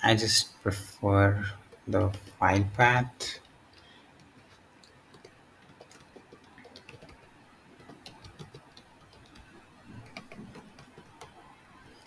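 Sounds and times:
keyboard keys clicking: 4.2s - 11.4s.

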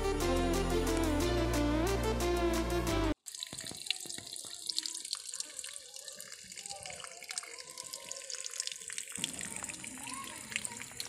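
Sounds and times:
water stream splashing into puddle: 3.2s - 11.0s.

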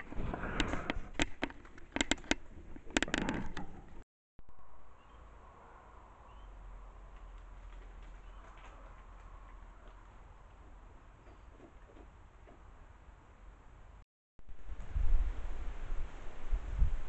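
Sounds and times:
low hum: 3.6s - 7.4s
faint chirps: 4.4s - 6.6s.

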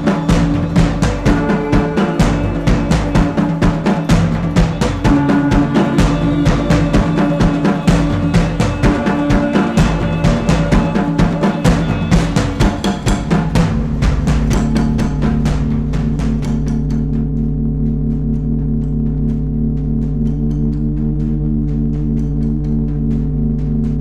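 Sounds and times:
fast drum beat: 0.0s - 17.4s
sustained low drone: 0.0s - 24.0s.

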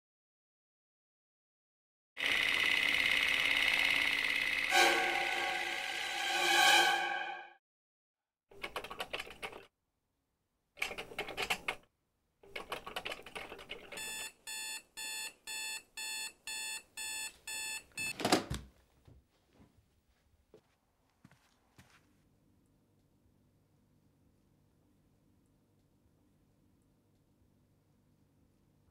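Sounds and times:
electronic phone beep: 14.0s - 18.1s.

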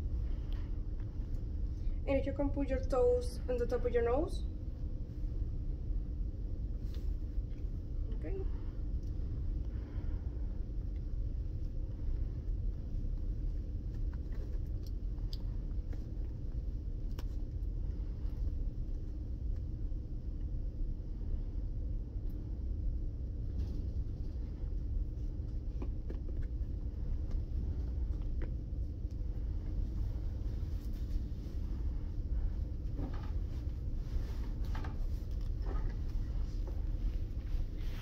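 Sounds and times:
ventilation rumble and hum: 0.0s - 38.0s
soft clicks and rustles: 10.8s - 20.5s, 23.3s - 38.0s.

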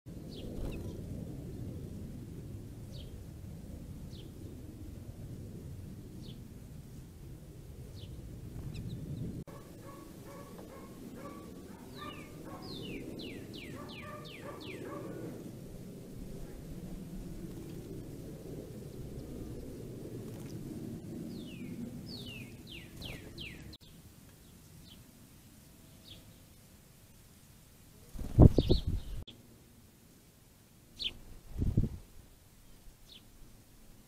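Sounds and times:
low outdoor rumble: 0.1s - 26.1s
songbirds chirping: 7.8s - 15.5s, 21.2s - 29.4s, 32.5s - 33.4s.

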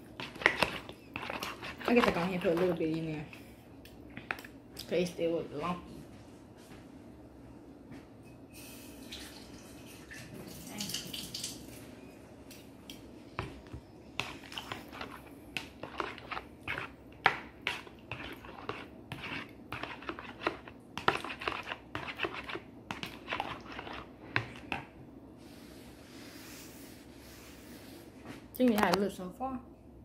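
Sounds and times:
metal spoon stirring in plastic bowl: 0.0s - 3.3s, 14.2s - 24.9s.

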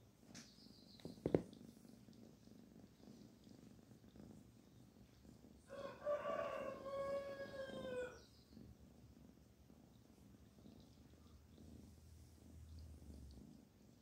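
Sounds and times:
kitten purring: 0.0s - 14.0s
rooster crowing: 5.7s - 8.2s.

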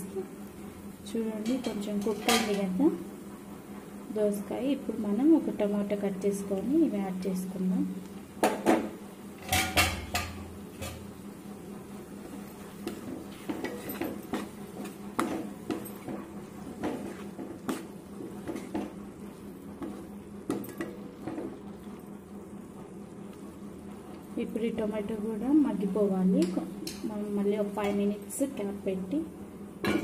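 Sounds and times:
spatula scraping pan: 12.8s - 19.0s.

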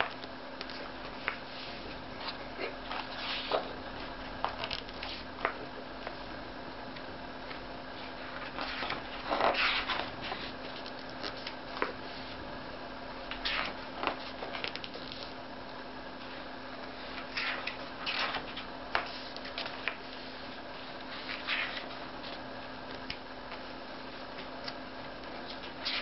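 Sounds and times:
steady low hum: 0.0s - 26.0s
book pages turning: 7.5s - 12.0s, 13.4s - 15.3s, 21.0s - 22.4s.

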